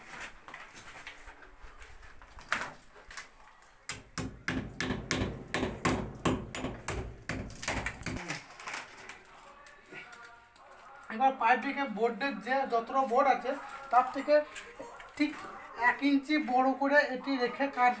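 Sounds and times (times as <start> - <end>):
hammer striking brick wall: 3.9 - 8.2.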